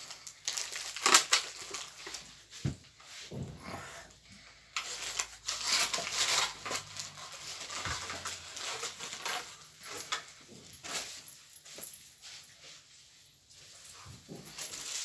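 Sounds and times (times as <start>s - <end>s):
toy pieces and packaging rustling: 0.0s - 2.6s, 4.7s - 12.5s, 13.6s - 15.0s.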